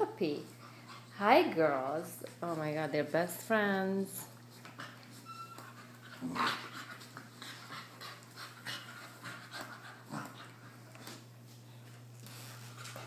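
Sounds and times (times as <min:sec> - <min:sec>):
dogs panting: 0:00.4 - 0:01.3, 0:04.4 - 0:11.2
dogs play-wrestling: 0:04.3 - 0:13.0.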